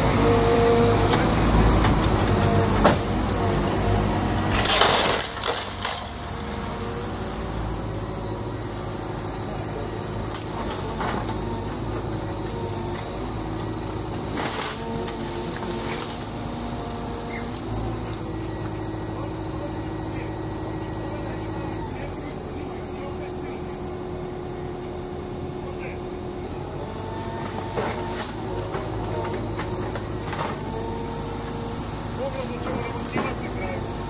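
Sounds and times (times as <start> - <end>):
excavator diesel engine running: 0.0 - 34.0
building material cracking and crashing: 4.4 - 6.5.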